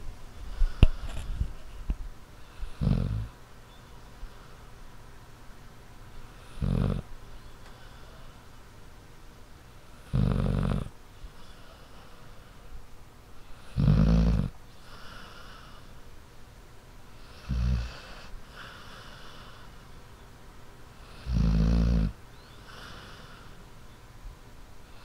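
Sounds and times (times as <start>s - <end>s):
dog snoring: 2.4s - 3.4s, 6.4s - 7.1s, 10.0s - 10.9s, 13.6s - 15.9s, 17.2s - 19.6s, 21.0s - 23.5s.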